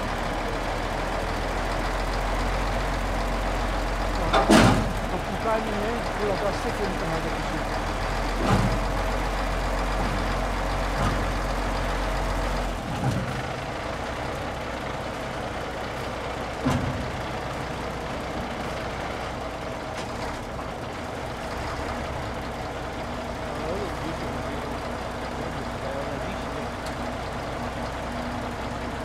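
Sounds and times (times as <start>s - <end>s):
diesel truck engine running: 0.0s - 29.0s
metallic clunks: 4.3s - 5.1s.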